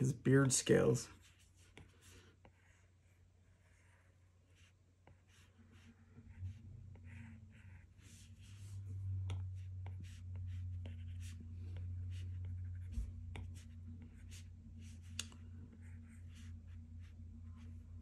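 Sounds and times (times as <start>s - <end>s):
low hum: 5.9s - 18.0s.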